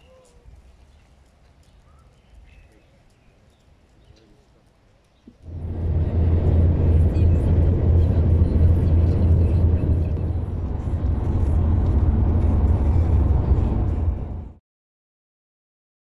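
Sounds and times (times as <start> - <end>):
car road and wind rumble: 5.3 - 14.6.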